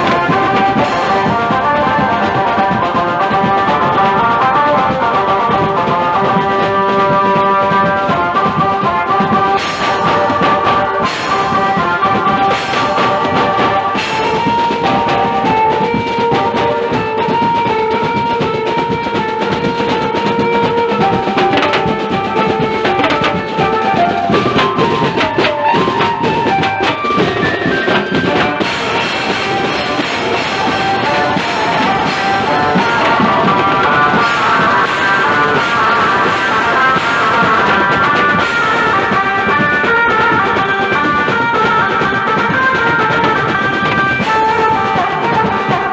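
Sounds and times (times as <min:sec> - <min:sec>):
bass drum: 0:00.0 - 0:36.2
cymbals: 0:00.0 - 0:45.9
snare drums: 0:00.0 - 0:45.9
melody line: 0:19.4 - 0:36.4.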